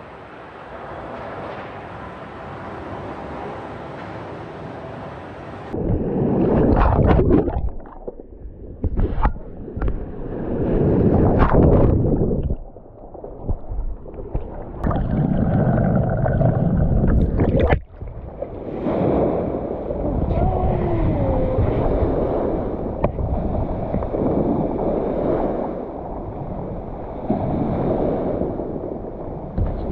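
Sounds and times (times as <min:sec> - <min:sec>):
wind rumbling on microphone: 0:05.6 - 0:29.9
water washing: 0:05.7 - 0:25.6.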